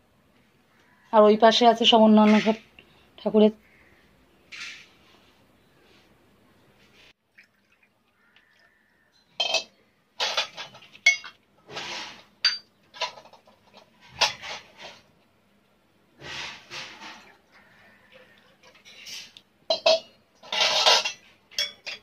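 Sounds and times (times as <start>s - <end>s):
brass vessels clinking and clattering: 9.2s - 15.1s, 16.4s - 22.0s.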